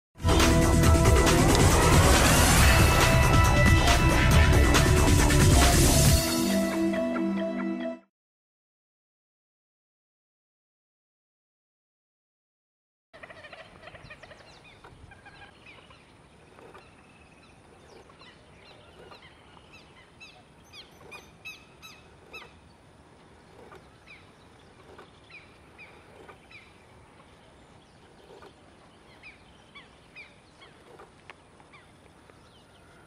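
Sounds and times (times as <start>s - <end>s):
waterbirds calling: 13.2s - 33.0s.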